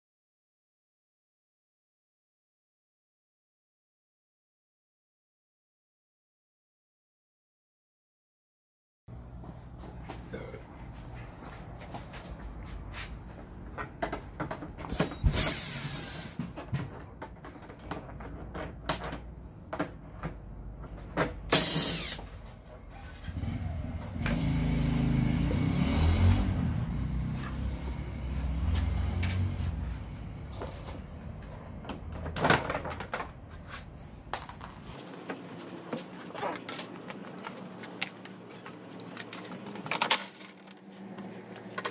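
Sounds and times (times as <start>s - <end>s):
cordless drill running: 21.5s - 22.3s.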